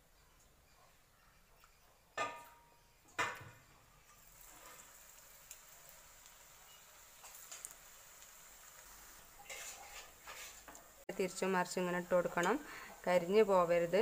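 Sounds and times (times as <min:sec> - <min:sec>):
hot oil sizzling: 0:03.1 - 0:14.0.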